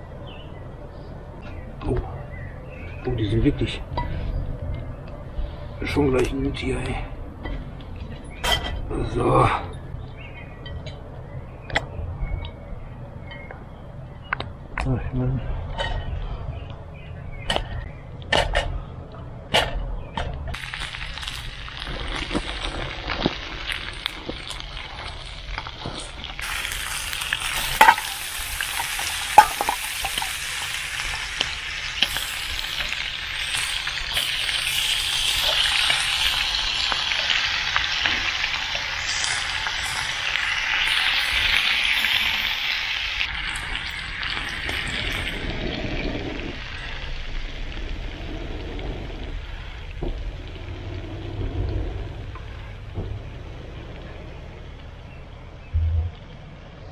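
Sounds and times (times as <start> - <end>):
sausages sizzling in a frying pan: 20.5 - 51.0.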